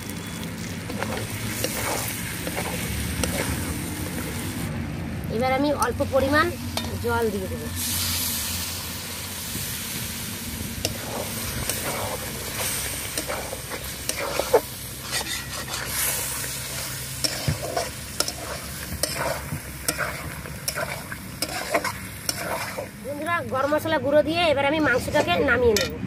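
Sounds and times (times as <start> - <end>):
curry sizzling and bubbling: 0.0 - 4.7, 5.4 - 24.1
spatula scraping metal pan: 13.1 - 22.8.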